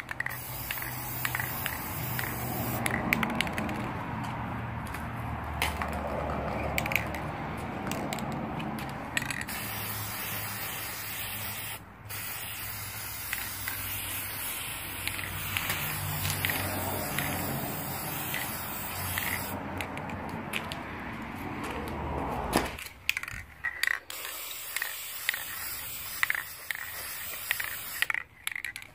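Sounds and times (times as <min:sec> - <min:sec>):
spray can clicks: 0:00.0 - 0:03.9, 0:10.9 - 0:20.0
spray can hissing: 0:00.0 - 0:03.9, 0:09.2 - 0:19.6, 0:24.0 - 0:28.2.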